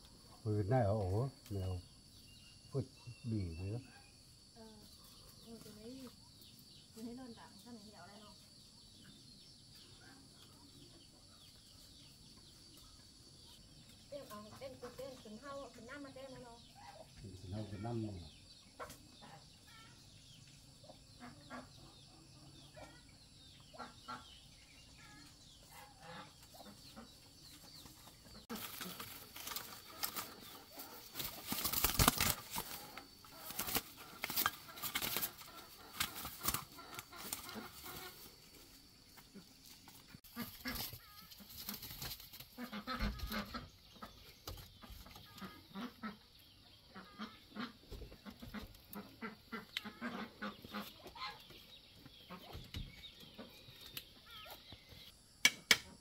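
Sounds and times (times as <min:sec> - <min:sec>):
chickens clucking: 0:08.8 - 0:55.1
wings flapping against a cage: 0:27.8 - 0:38.4, 0:40.3 - 0:43.6.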